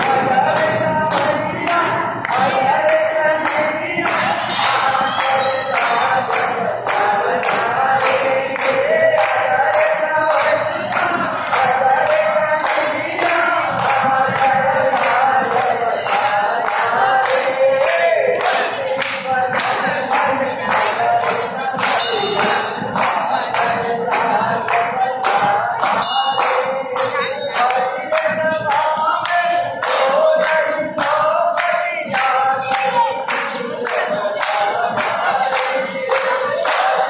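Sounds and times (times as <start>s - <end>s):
group singing devotional song: 0.0s - 37.0s
rhythmic hand-clapping: 0.0s - 37.0s.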